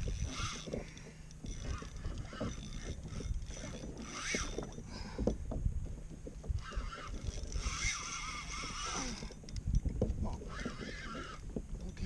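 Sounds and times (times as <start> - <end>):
fishing reel knocks and clicks: 0.0 - 12.0
water sloshing against hull: 0.0 - 12.0
wind on microphone: 0.0 - 12.0.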